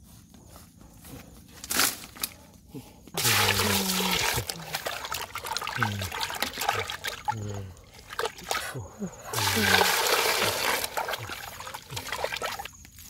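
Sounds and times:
water sloshing in metal pot: 3.2 - 12.7.

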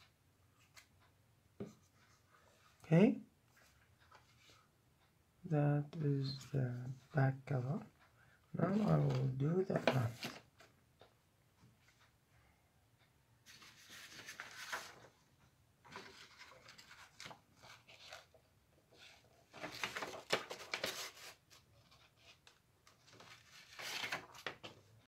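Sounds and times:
paper rustling and crinkling: 8.8 - 10.7, 13.5 - 15.2, 15.9 - 24.9.

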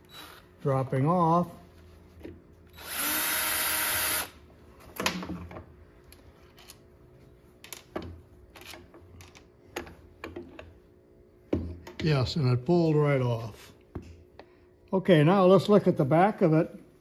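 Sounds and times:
drill running: 2.7 - 4.4.

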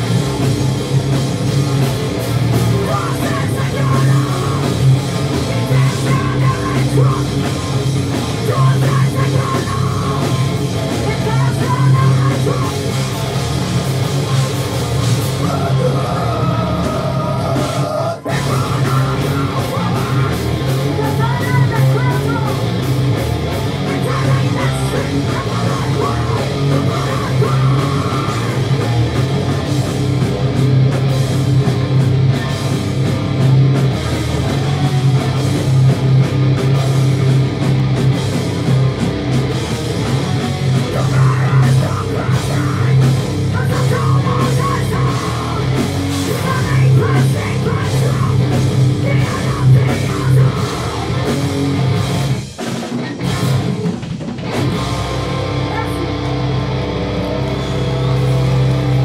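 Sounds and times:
punk band playing live: 0.0 - 59.0
shouted vocals: 2.7 - 4.8, 5.5 - 7.6, 8.4 - 12.9, 15.4 - 22.8, 23.8 - 28.8, 40.8 - 51.4, 55.6 - 56.4.

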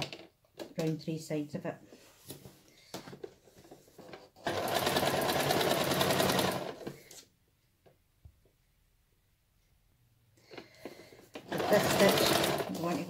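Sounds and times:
sewing machine stitching: 4.1 - 7.1, 11.4 - 13.0.

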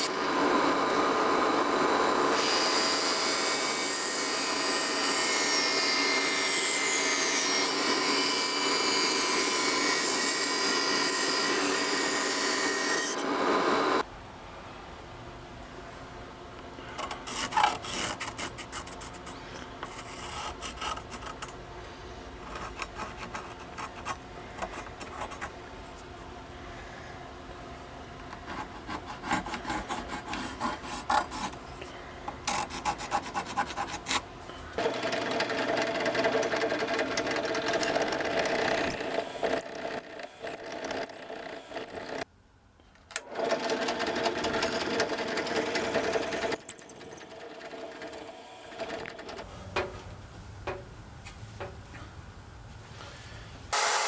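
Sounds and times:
drill press boring wood: 0.0 - 14.0, 34.8 - 42.2, 43.2 - 49.4
pencil scratching on wood: 28.4 - 31.6, 32.5 - 34.2.

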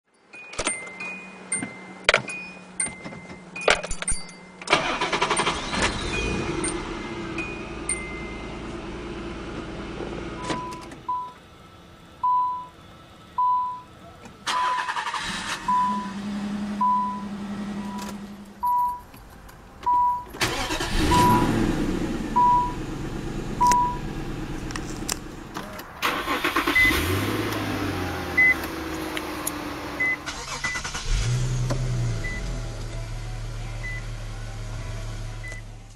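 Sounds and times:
engine cranking and starting: 4.7 - 6.9, 14.4 - 15.8, 20.3 - 22.4, 24.5 - 32.9
car warning beeps: 4.7 - 8.6, 10.4 - 11.4, 12.2 - 12.8, 13.4 - 19.1, 19.8 - 24.2, 25.6 - 28.7, 29.9 - 31.0, 32.2 - 32.5, 33.8 - 34.1.

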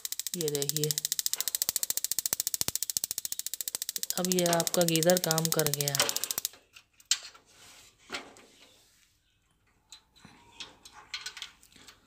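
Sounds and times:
light clicks of plastic connectors: 0.1 - 7.2.

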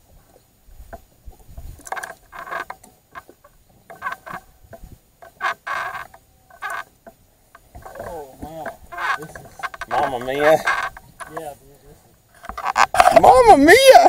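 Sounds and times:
fishing reel drag slipping: 1.8 - 3.3, 3.9 - 4.5, 5.2 - 6.9, 7.6 - 11.5, 12.4 - 13.2.

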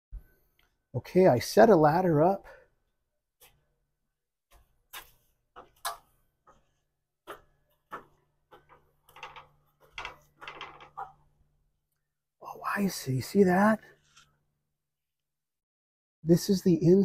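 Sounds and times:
footsteps on metal ladder steps: 4.5 - 11.4.

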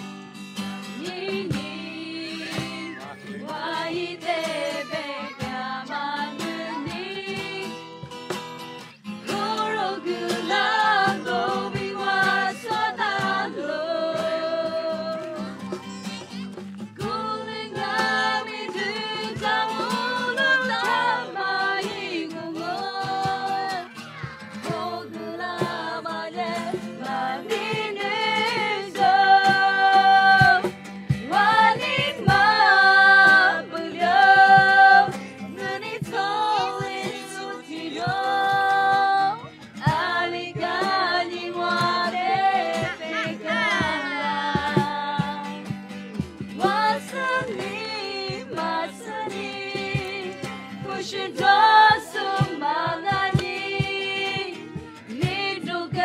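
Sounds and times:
person singing: 1.0 - 7.9, 8.9 - 45.4, 46.6 - 56.0
instrumental backing with bass: 39.4 - 56.0.

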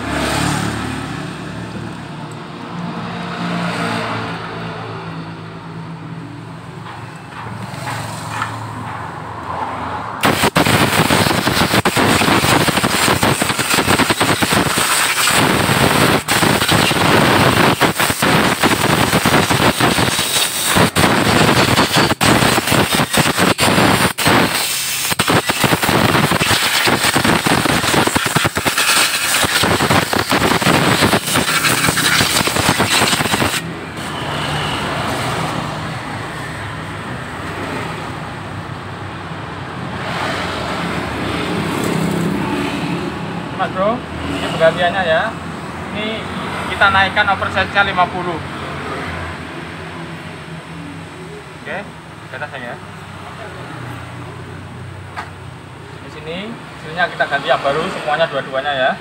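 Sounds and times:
compressed air blow gun hissing: 10.2 - 33.6.

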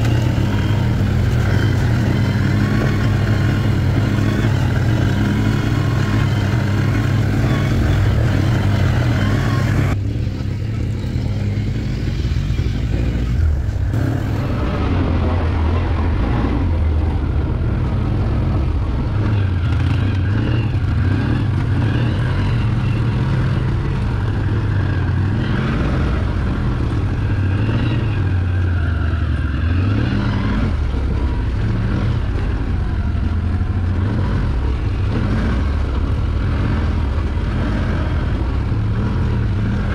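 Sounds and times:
atv engine droning: 0.0 - 39.9.

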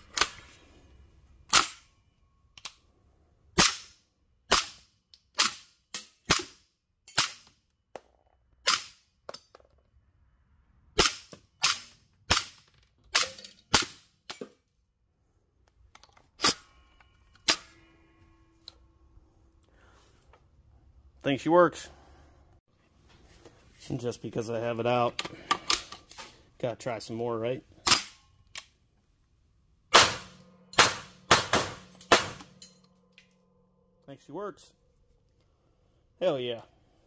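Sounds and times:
carbine gunshots: 29.9 - 32.5.

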